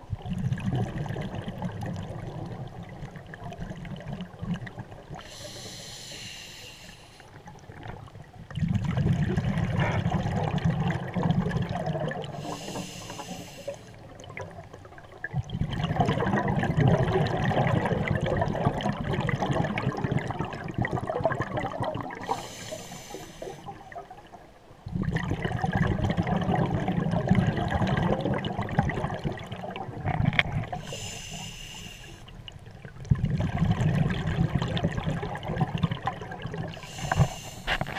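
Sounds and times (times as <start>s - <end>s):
diver breathing through a regulator: 5.2s - 7.4s, 12.3s - 14.0s, 22.2s - 23.8s, 30.7s - 32.3s, 36.8s - 37.9s.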